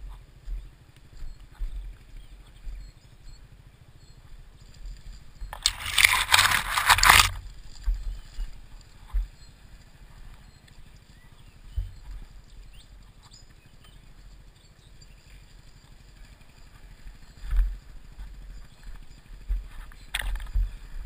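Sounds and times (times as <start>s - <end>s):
dirt bike engine at low revs: 0.0s - 21.0s
branches scraping across camera: 5.5s - 7.9s.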